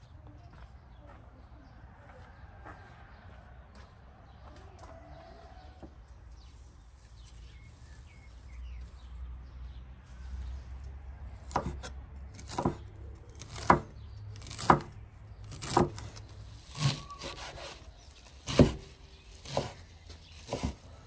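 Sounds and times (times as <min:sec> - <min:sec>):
knife chopping on wooden board: 0:11.4 - 0:20.9.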